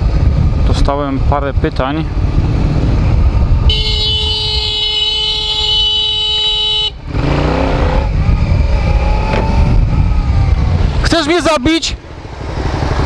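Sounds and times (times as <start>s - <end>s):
motorcycle engine: 0.0s - 13.0s
wind rumble: 0.0s - 13.0s
vehicle horn: 3.6s - 7.2s.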